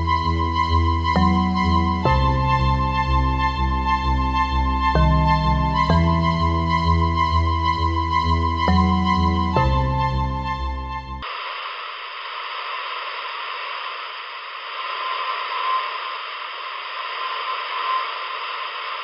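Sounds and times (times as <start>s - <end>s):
ambient music with held tones: 0.0s - 11.3s
radio static: 11.3s - 19.0s.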